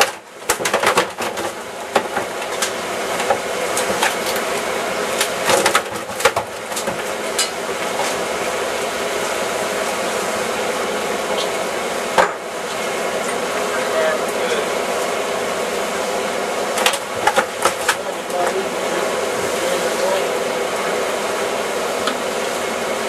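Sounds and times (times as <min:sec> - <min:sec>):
boat engine drone: 0:06.6 - 0:23.0.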